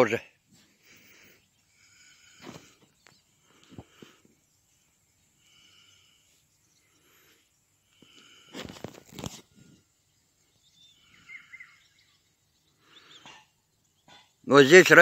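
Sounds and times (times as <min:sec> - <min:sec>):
faint bird chirps: 0:00.2 - 0:14.6
crunching rustle: 0:08.0 - 0:09.7.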